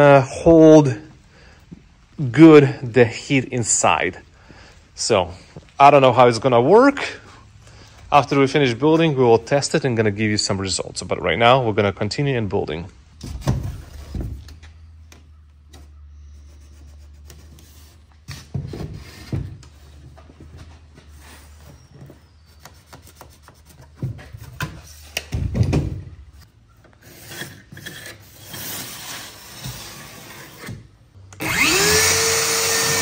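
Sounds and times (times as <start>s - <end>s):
tools scraping on foam board: 15.7s - 25.2s, 26.8s - 30.9s.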